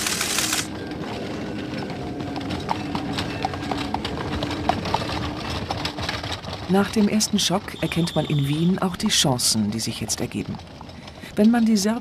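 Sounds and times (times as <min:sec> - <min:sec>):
horse hooves clopping: 0:00.0 - 0:12.0.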